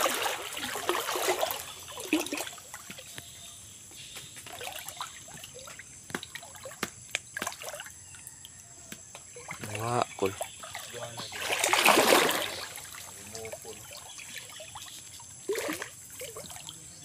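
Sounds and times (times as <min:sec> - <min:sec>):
water splashing and trickling: 0:00.0 - 0:17.0
water drips: 0:04.4 - 0:16.9.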